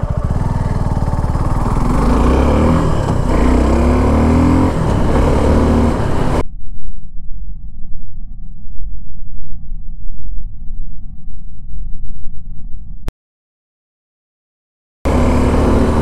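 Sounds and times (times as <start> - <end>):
motorcycle engine revving: 0.0 - 6.4, 15.1 - 16.0
loud deep rumbling: 0.0 - 13.1.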